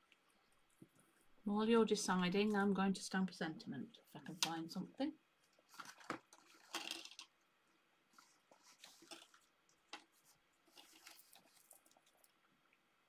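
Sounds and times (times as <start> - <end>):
rustling of crafting supplies: 0.1 - 3.4, 5.4 - 12.4.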